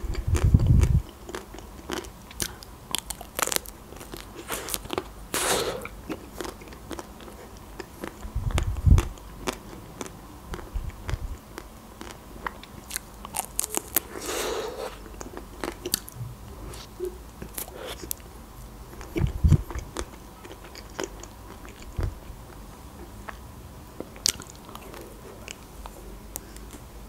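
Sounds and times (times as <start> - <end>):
wet mouth sounds: 0.0 - 7.1, 12.8 - 18.3
ice cream crunching and chewing: 0.0 - 18.3, 18.9 - 23.4, 24.0 - 26.8.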